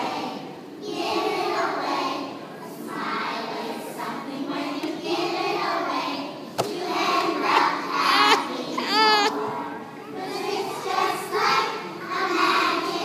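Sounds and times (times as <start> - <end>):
children's voices: 4.6 - 13.0.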